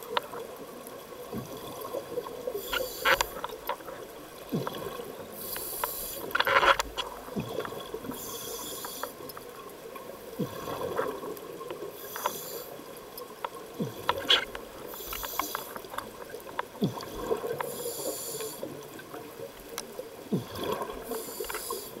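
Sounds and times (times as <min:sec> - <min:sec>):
regulator breathing hiss: 0:02.5 - 0:03.4, 0:05.4 - 0:06.4, 0:08.1 - 0:09.2, 0:12.0 - 0:12.8, 0:14.9 - 0:15.8, 0:17.6 - 0:18.7, 0:21.0 - 0:22.0.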